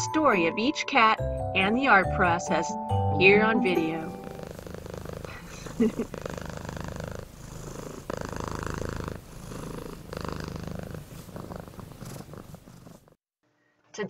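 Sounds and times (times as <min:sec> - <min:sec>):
cat purring: 0:03.6 - 0:13.2.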